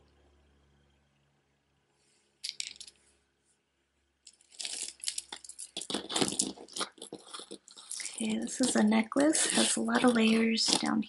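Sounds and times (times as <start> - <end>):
beads and chains jangling: 4.4 - 11.0.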